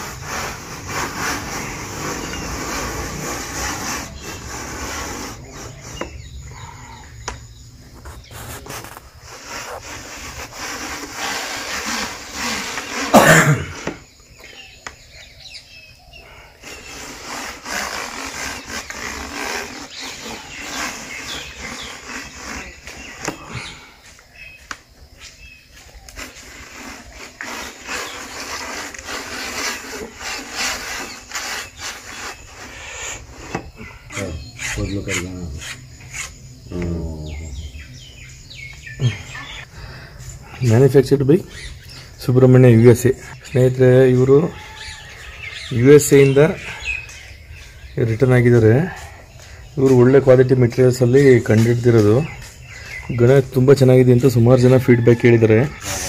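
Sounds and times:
telescopic pole sections sliding: 0:00.0 - 0:06.4, 0:07.9 - 0:14.6, 0:16.6 - 0:23.6, 0:24.6 - 0:33.7.

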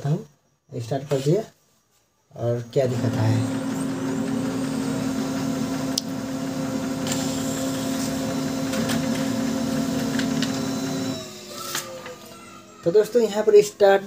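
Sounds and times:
printer motor hum: 0:02.8 - 0:14.0
printer clicks: 0:07.0 - 0:12.3.

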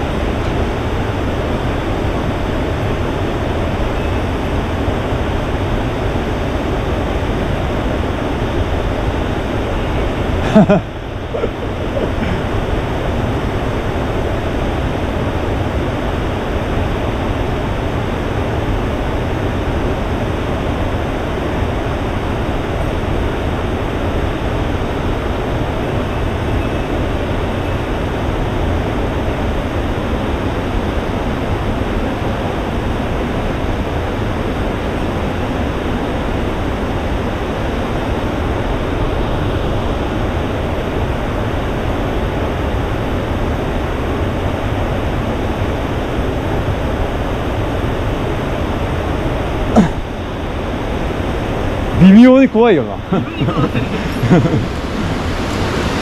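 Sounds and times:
water rushing over rocks: 0:49.0 - 0:56.0.

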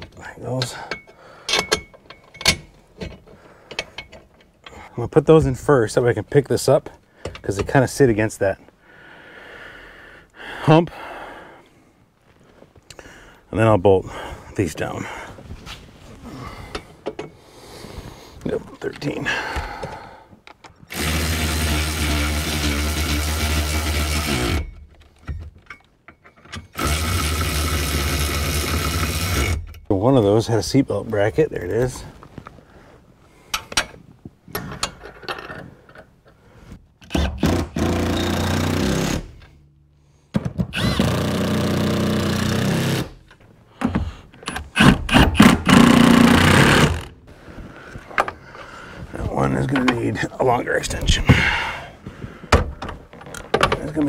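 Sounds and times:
cordless power tool driving bolts: 0:20.8 - 0:29.9, 0:37.0 - 0:39.6, 0:40.4 - 0:47.2
impact driver hammering: 0:37.0 - 0:39.3, 0:44.8 - 0:47.1.

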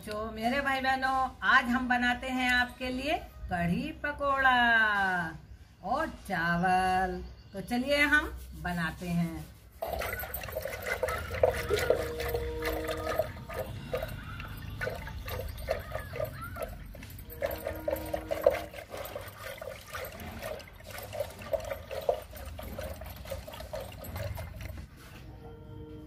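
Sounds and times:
liquid sloshing and splashing: 0:09.5 - 0:25.1.

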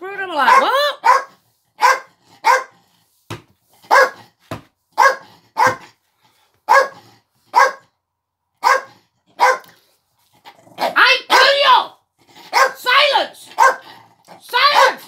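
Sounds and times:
dog barking: 0:00.4 - 0:02.8, 0:03.8 - 0:04.3, 0:05.0 - 0:06.0, 0:06.7 - 0:07.9, 0:08.6 - 0:09.8, 0:10.8 - 0:11.7, 0:12.5 - 0:14.0, 0:14.6 - 0:15.0.

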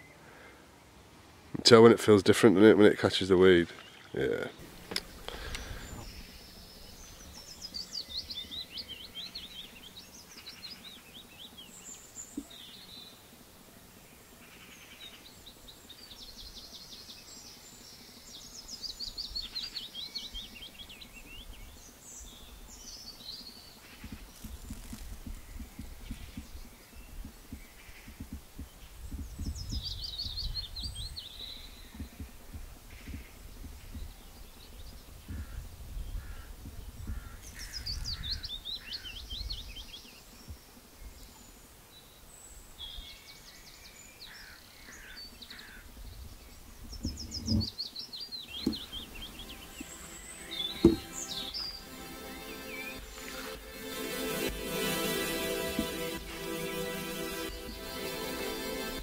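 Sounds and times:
songbird singing: 0:01.5 - 0:59.0
bird chirps: 0:42.8 - 0:59.0.

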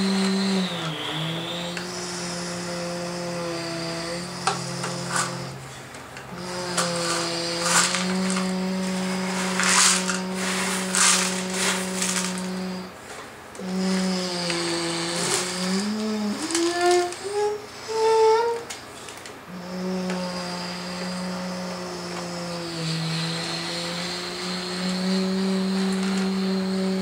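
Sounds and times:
person humming a low drone: 0:00.0 - 0:05.6, 0:06.3 - 0:13.0, 0:13.6 - 0:18.7, 0:19.5 - 0:27.0.

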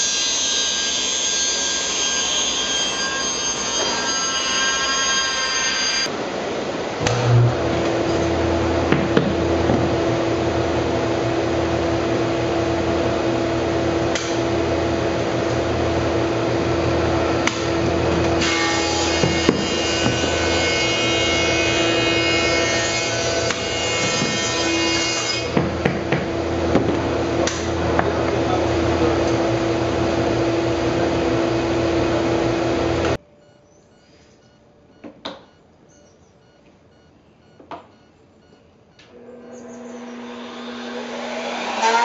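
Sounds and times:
planer cutting wood: 0:00.0 - 0:06.1, 0:07.0 - 0:33.2, 0:39.2 - 0:42.0
thickness planer motor hum: 0:06.8 - 0:33.2, 0:39.2 - 0:42.0
boards knocking against machine: 0:08.9 - 0:10.0, 0:17.4 - 0:21.3, 0:22.2 - 0:24.7, 0:25.5 - 0:28.4.

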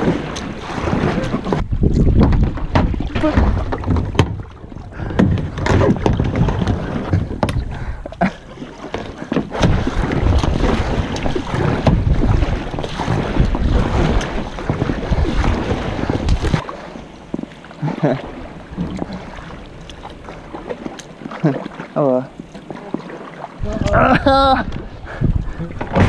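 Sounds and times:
wind rumbling on microphone: 0:00.0 - 0:08.4, 0:09.3 - 0:16.6, 0:23.6 - 0:26.0
paddle splashing in water: 0:00.0 - 0:26.0
sharp knocks: 0:01.5 - 0:07.7.

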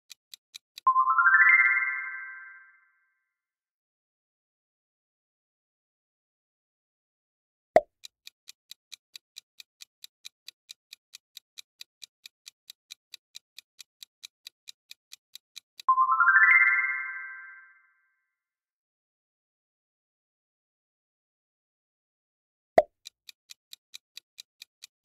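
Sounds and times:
countdown timer ticking: 0:07.8 - 0:16.3
bright rising chime: 0:16.0 - 0:17.7.

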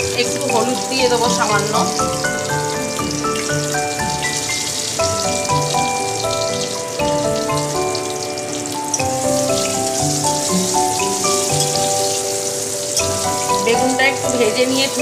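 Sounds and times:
eggplant sizzling in hot oil: 0:00.0 - 0:15.0.

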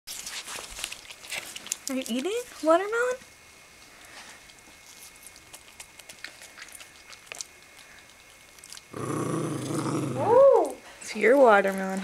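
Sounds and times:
dog chewing and licking: 0:00.1 - 0:02.7, 0:03.8 - 0:09.9, 0:11.2 - 0:12.0.

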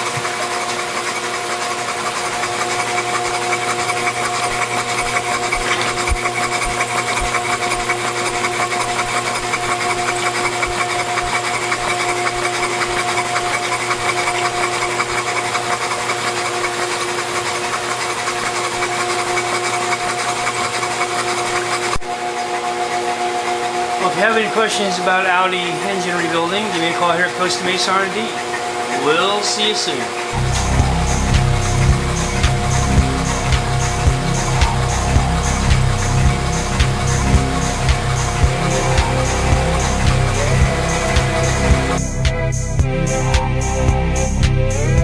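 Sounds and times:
valvetrain clatter: 0:00.0 - 0:22.0, 0:30.2 - 0:42.3
engine mechanical hum: 0:00.0 - 0:45.0.

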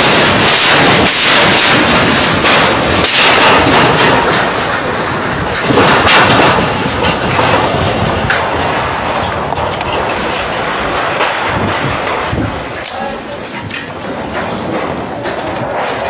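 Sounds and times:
fire roaring: 0:00.0 - 0:16.0
sharp cracks and bangs: 0:00.0 - 0:16.0.

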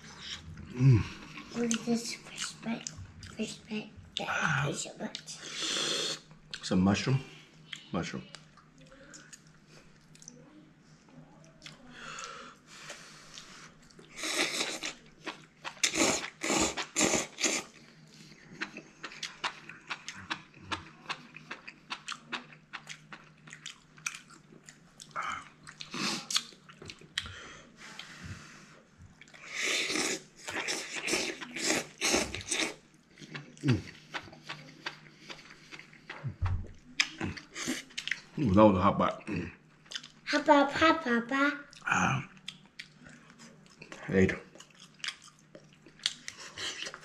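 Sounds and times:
wet chewing: 0:11.4 - 0:28.2, 0:29.2 - 0:38.4, 0:39.2 - 0:40.2, 0:41.7 - 0:47.0
man slurping noodles: 0:15.8 - 0:17.7.

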